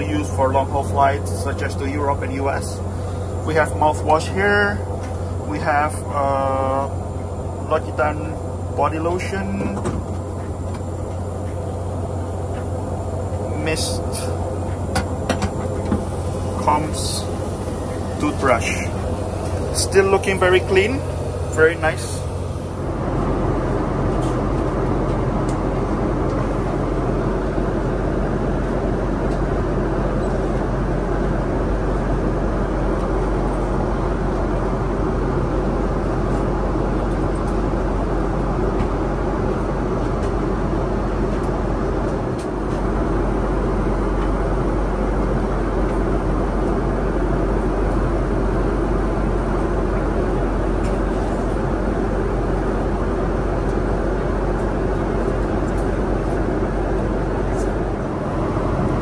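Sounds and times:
airliner cabin drone: 0.0 - 59.0.

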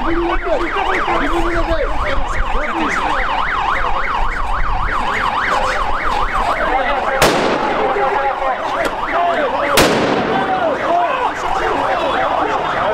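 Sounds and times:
crowd voices: 0.0 - 12.9
electronic siren yelping: 0.0 - 12.9.

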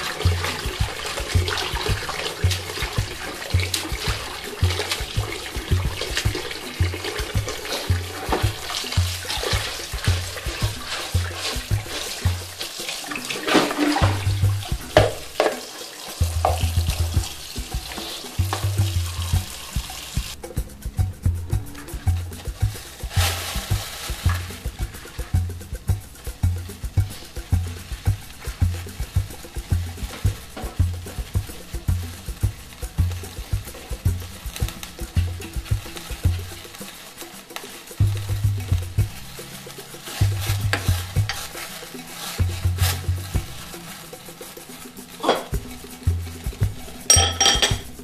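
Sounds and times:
tap water running into bowl: 0.0 - 20.4
background music with bass beat: 0.0 - 48.0.

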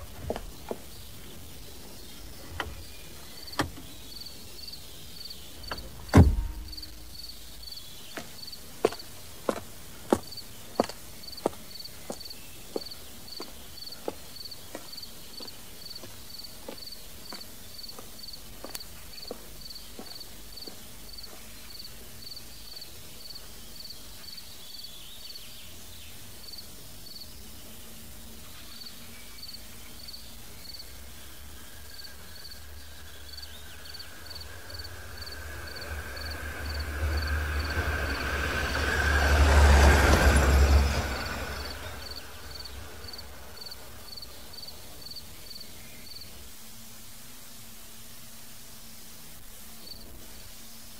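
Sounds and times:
footsteps: 0.0 - 1.4
crickets chirping: 0.0 - 46.6, 47.5 - 50.9
vehicle rumble approaching: 33.6 - 44.0.

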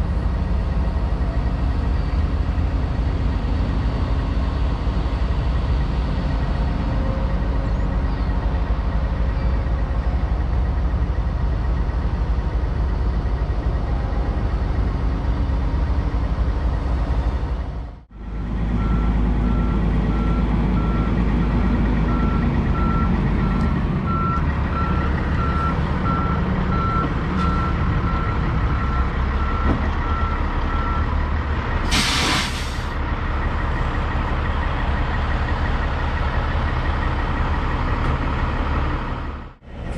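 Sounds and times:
diesel engine rumbling: 0.0 - 39.9
reversing alarm beeping: 18.8 - 21.2, 22.1 - 31.2
loud air hiss: 31.9 - 32.9.

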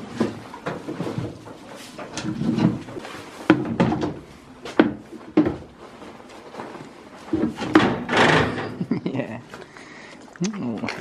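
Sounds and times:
wood and wire gate clattering: 7.3 - 9.0.

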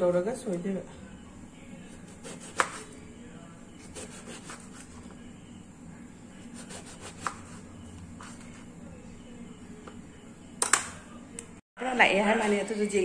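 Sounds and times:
knife sawing through eggplant: 2.0 - 2.9, 3.8 - 5.0, 6.4 - 7.6.

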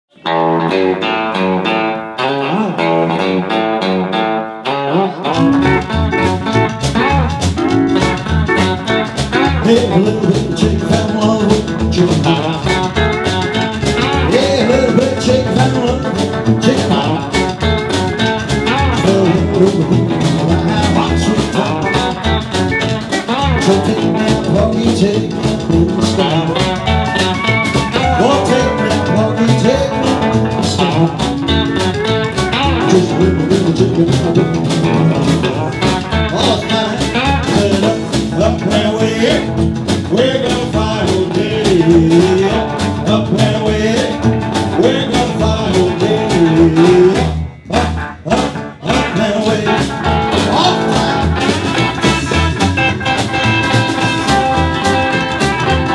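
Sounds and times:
guitar: 0.0 - 55.9
rockabilly band music: 0.1 - 55.9
man singing: 2.4 - 3.3, 4.9 - 6.0, 9.4 - 22.4, 23.3 - 31.9, 32.6 - 52.8.

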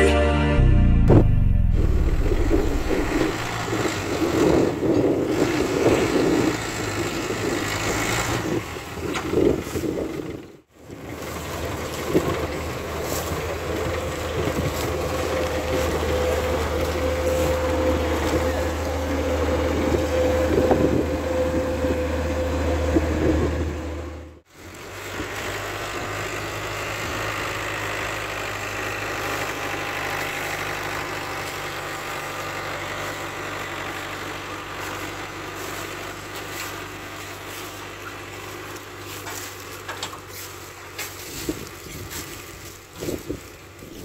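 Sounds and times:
held whine: 0.0 - 7.4, 13.0 - 24.4
diesel engines running: 0.0 - 44.0.

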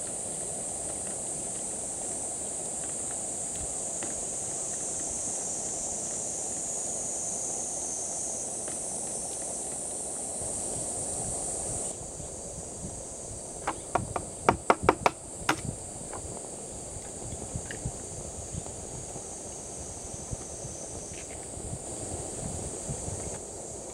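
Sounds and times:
egg tapping on metal bowl: 13.7 - 15.6.

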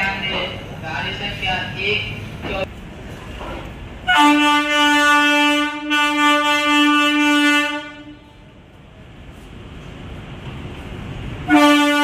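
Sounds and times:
station background noise: 0.0 - 7.3, 8.0 - 12.0
locomotive horn blast: 4.0 - 8.5, 11.4 - 12.0.

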